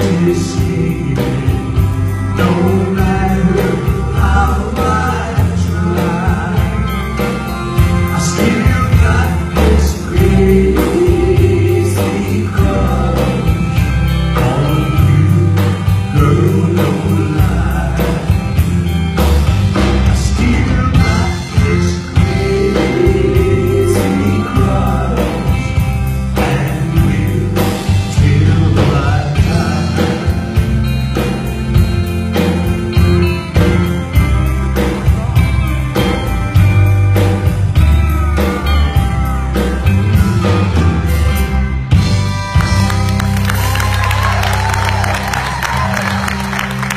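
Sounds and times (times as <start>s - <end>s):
man singing: 0.0s - 19.0s, 19.7s - 31.5s, 32.3s - 36.7s
amplified band: 0.0s - 46.9s
bass line: 0.0s - 46.9s.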